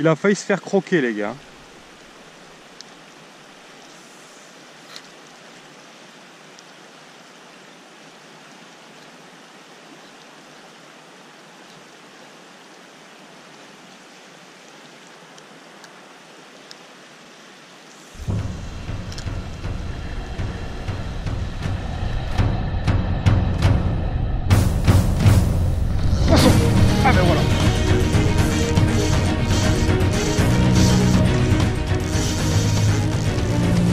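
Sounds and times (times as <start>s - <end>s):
river water flowing: 0.0s - 33.9s
faint click: 4.8s - 5.4s
loud low-pitched noise: 18.2s - 33.9s.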